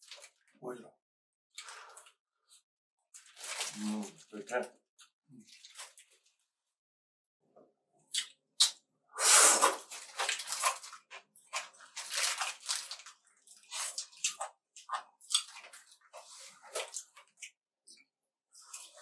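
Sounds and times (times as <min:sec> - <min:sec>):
biting and chewing food: 0:09.8 - 0:18.0.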